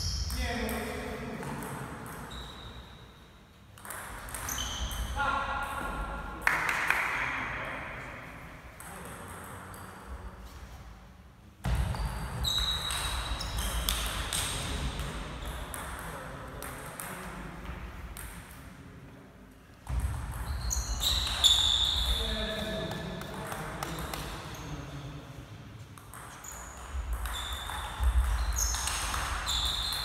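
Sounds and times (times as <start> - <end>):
ball bouncing on table: 3.8 - 5.1, 26.0 - 30.0
ping pong ball on rackets: 3.8 - 5.1, 26.0 - 30.0.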